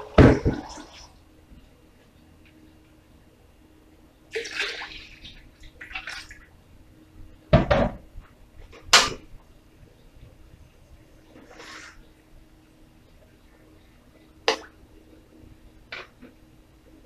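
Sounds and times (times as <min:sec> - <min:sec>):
water splashing: 0:04.3 - 0:06.5.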